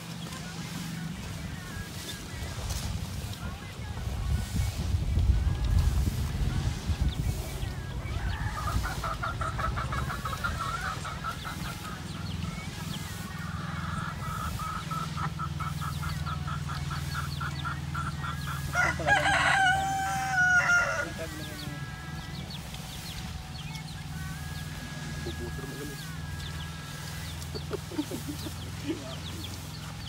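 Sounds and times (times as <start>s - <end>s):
chicken clucking: 0.0s - 30.0s
rooster crowing: 18.6s - 22.4s.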